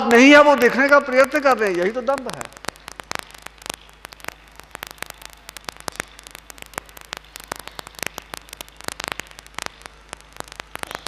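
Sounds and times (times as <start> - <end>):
electrical static crackling: 0.0 - 11.0
mains hum: 0.0 - 11.0.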